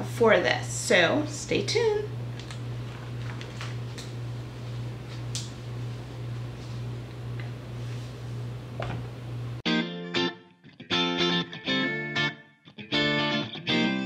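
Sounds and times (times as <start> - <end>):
low room hum: 0.0 - 9.6.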